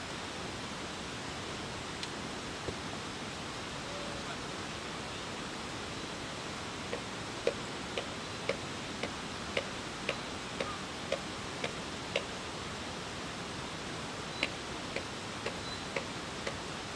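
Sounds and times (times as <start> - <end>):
steady hiss: 0.0 - 16.9
light ticks: 6.9 - 12.3, 14.4 - 16.6.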